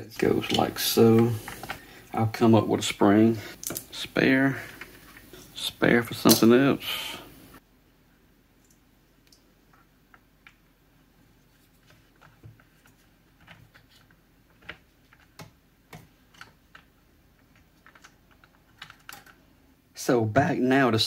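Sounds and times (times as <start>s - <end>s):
plastic parts clicking: 13.4s - 19.4s.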